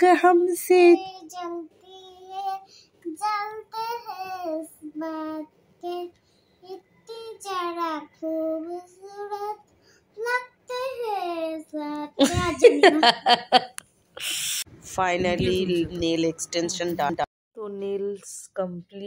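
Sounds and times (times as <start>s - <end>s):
girl singing: 0.8s - 9.6s, 10.2s - 12.8s.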